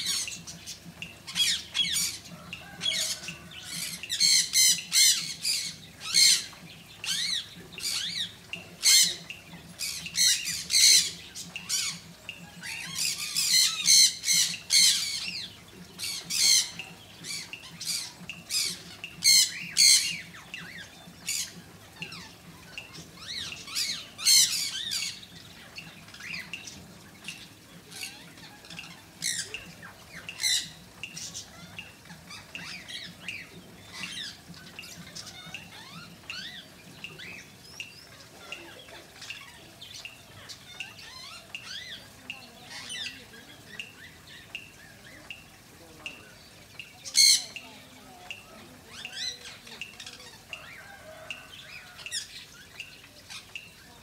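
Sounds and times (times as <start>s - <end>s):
birds squawking: 0.0s - 54.0s.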